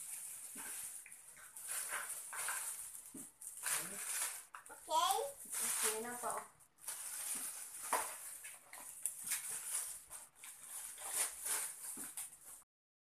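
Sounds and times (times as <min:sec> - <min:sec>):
plastic bags rustling: 0:00.0 - 0:12.6.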